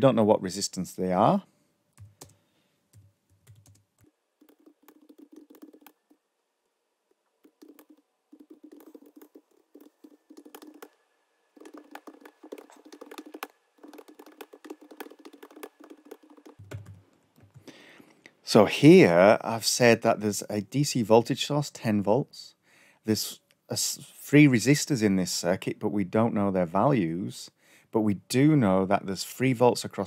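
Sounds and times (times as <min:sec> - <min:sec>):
faint keyboard typing: 0:01.9 - 0:06.2, 0:07.3 - 0:18.2.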